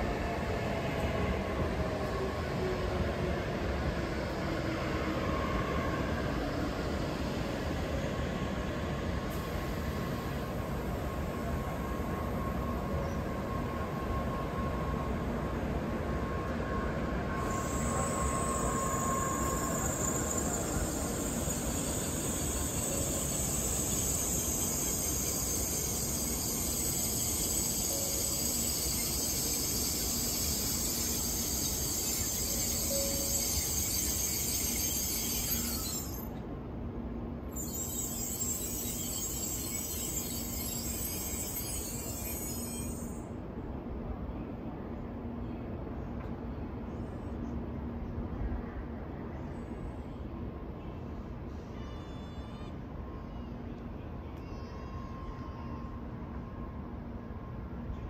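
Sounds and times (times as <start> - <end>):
train rushing noise: 0.0 - 46.8
high hiss: 17.4 - 36.3.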